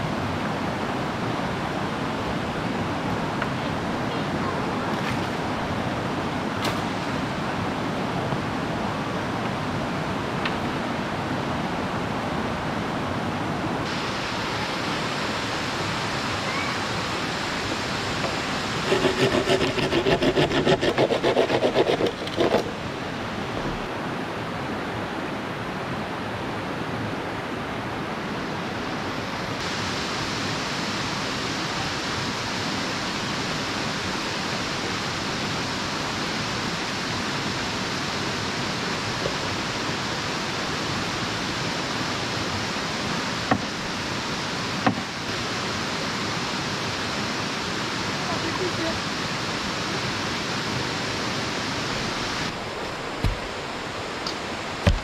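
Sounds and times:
river rushing over stones: 0.0s - 55.0s.

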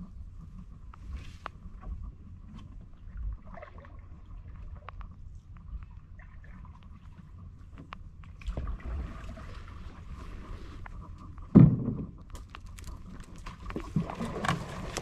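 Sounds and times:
knock against canoe: 11.5s - 12.1s
twigs snapping and scraping: 12.3s - 13.9s.

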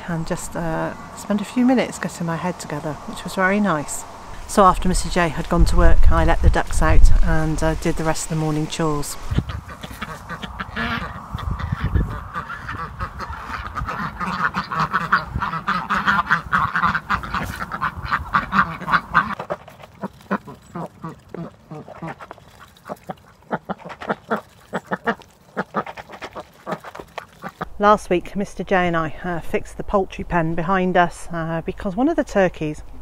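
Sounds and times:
ducks quacking: 8.0s - 27.7s.

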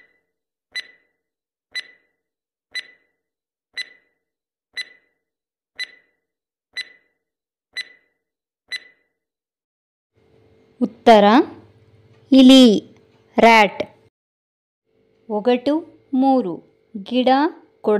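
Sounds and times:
clock-like ticking: 0.8s - 1.0s, 1.7s - 2.0s, 2.7s - 3.0s, 3.8s - 4.1s, 4.8s - 5.1s, 5.8s - 6.1s, 6.8s - 7.0s, 7.8s - 8.0s.

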